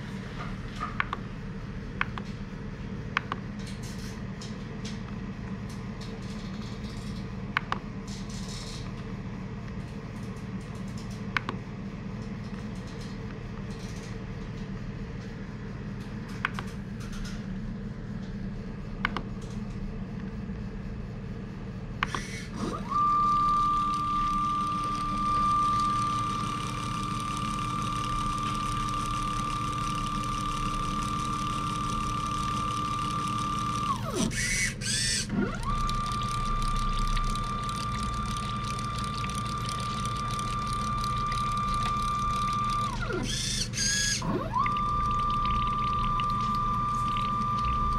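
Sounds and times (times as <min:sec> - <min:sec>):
steady low hum: 0:00.0 - 0:47.9
small pump motor whining: 0:22.0 - 0:47.9.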